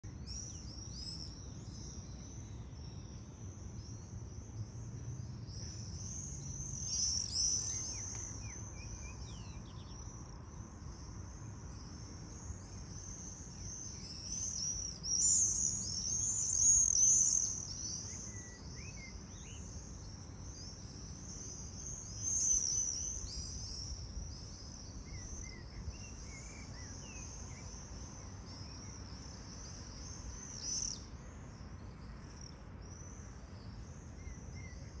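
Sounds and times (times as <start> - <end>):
shrill bird calls overhead: 13.8 - 19.7.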